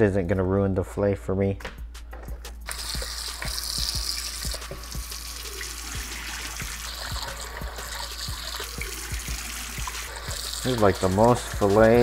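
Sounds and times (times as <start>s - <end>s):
tap water running over fish: 2.7s - 12.0s.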